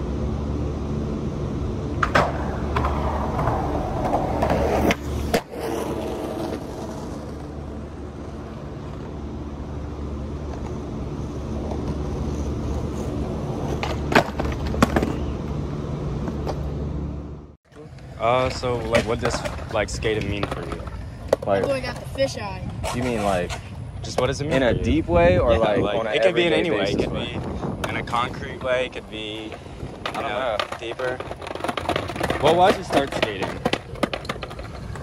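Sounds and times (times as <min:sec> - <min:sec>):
skateboard wheels rolling on concrete: 0:00.0 - 0:35.0
skateboard clacking on ground: 0:02.0 - 0:07.6, 0:10.4 - 0:15.6, 0:17.9 - 0:24.5, 0:27.3 - 0:35.0.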